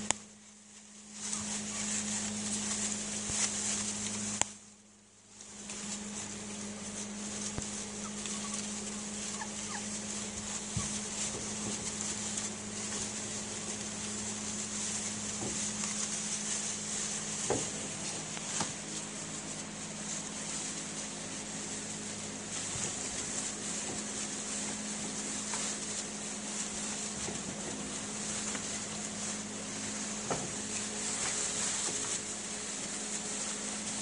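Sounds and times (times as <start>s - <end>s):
low hum and hiss: 0.0s - 34.0s
puppies squeaking: 1.2s - 2.0s, 7.6s - 12.1s.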